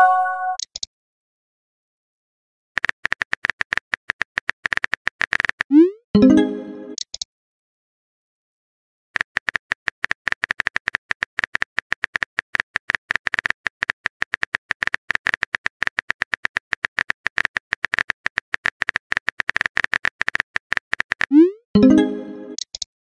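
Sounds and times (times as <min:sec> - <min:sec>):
phone keyboard clicks: 0:09.2 - 0:21.3.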